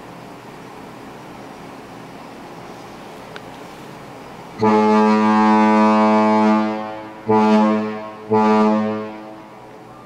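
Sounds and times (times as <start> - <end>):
deep ship's horn blasts: 4.6 - 9.7.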